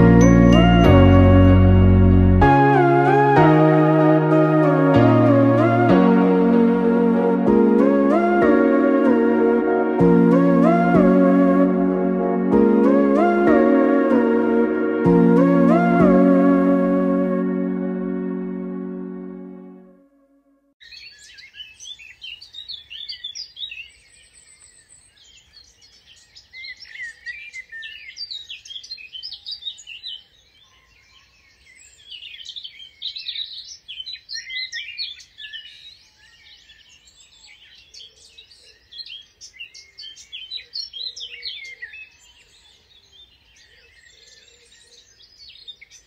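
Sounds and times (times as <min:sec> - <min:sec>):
songbirds chirping and trilling: 0:20.8 - 0:46.0.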